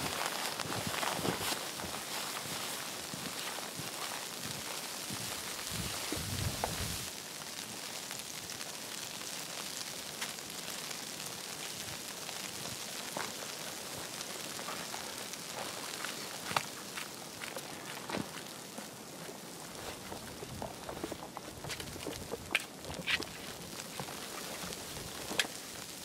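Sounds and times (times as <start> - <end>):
footsteps in deep snow: 0.0 - 7.1, 13.1 - 25.7
soft hiss of snowy forest: 0.0 - 26.0.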